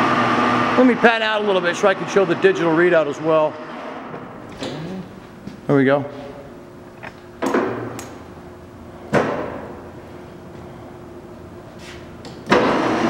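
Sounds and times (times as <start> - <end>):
faint steady hum: 4.3 - 12.4.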